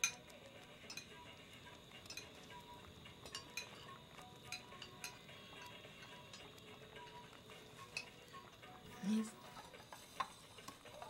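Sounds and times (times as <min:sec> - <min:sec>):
spoons clinking on ceramic plates: 0:00.0 - 0:01.2, 0:02.0 - 0:02.6, 0:03.2 - 0:08.2.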